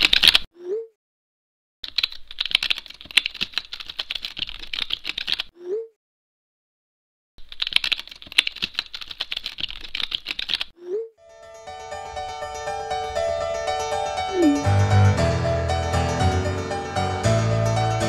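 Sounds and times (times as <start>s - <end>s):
rapid typing on keyboard: 0.0s - 0.5s, 1.8s - 5.5s, 7.4s - 10.7s
short rising tone: 14.3s - 15.0s.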